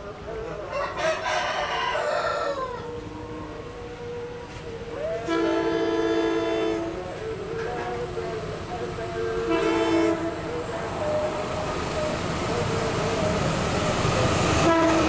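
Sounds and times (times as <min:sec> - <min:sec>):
rooster crowing: 0:00.7 - 0:04.4
locomotive air horn: 0:03.0 - 0:07.2, 0:09.2 - 0:10.7, 0:14.6 - 0:15.0.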